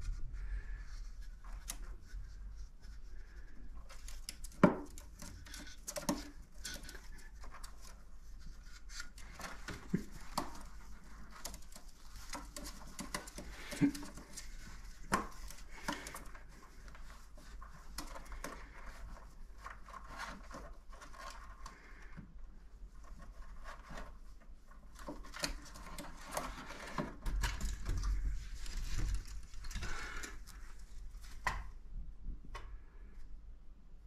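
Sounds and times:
beak tapping and pecking: 3.9s - 8.0s, 8.9s - 16.4s
scuffling and rustling: 22.8s - 32.0s.

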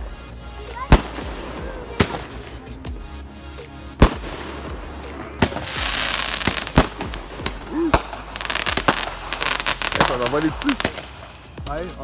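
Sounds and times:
crackling fireworks stars: 0.0s - 12.0s
fireworks bangs: 0.9s - 2.6s, 4.0s - 11.5s.

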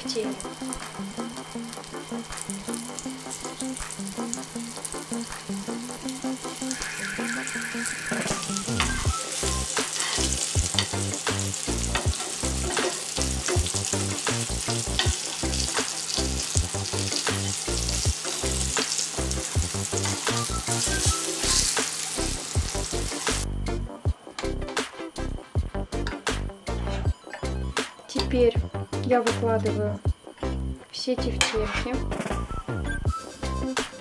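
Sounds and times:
meatballs sizzling in oil: 0.0s - 23.5s
utensils clicking against pan: 8.2s - 22.2s.

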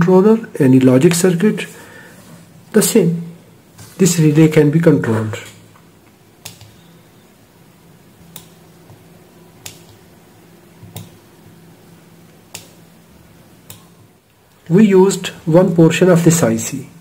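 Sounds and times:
faint steady hum: 0.0s - 17.0s
micro switches clicking: 6.1s - 6.8s, 8.3s - 10.1s, 10.8s - 11.2s, 12.3s - 12.9s, 13.6s - 14.6s.

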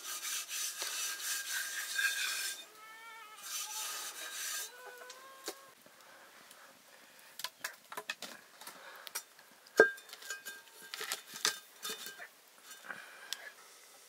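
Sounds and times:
metal cookware clinking: 9.8s - 12.9s.

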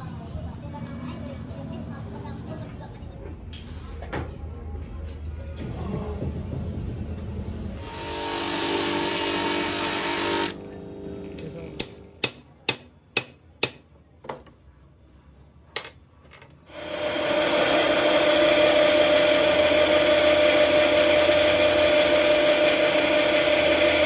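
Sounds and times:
drill press humming: 7.8s - 12.2s, 16.7s - 24.0s.

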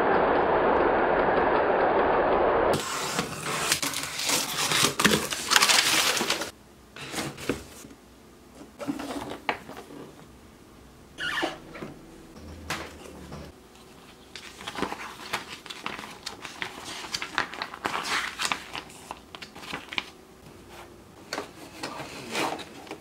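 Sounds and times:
loud crunching and crackling: 2.7s - 6.5s
cardboard box rustling: 2.8s - 6.5s.

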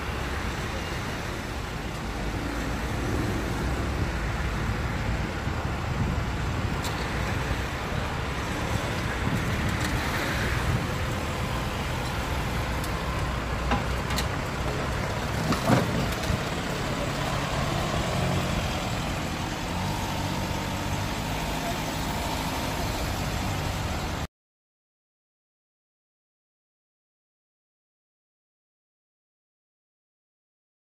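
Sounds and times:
vehicle engines idling: 0.0s - 24.3s.

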